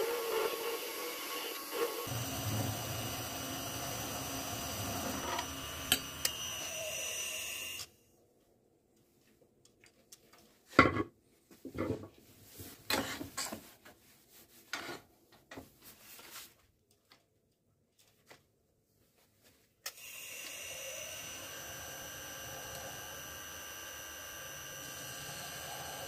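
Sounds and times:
wood lathe running: 0:00.0 - 0:07.9, 0:20.0 - 0:26.0.

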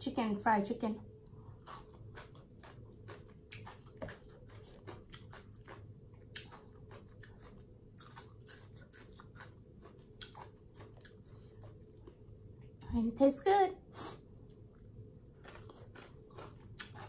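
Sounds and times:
close wet chewing: 0:01.6 - 0:12.2, 0:15.4 - 0:17.0.

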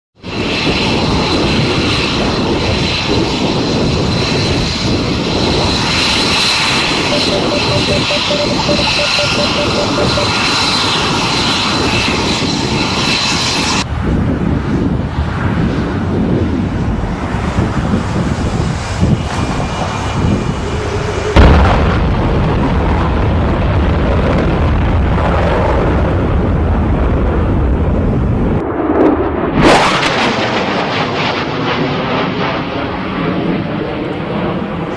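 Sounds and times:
jet engines roaring: 0:00.2 - 0:34.9
high turbine whine: 0:05.6 - 0:13.8, 0:18.4 - 0:21.9.

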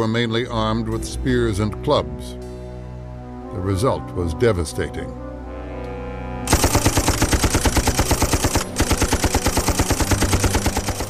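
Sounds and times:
low music drone: 0:00.0 - 0:11.0
machine gun firing: 0:06.5 - 0:11.0.

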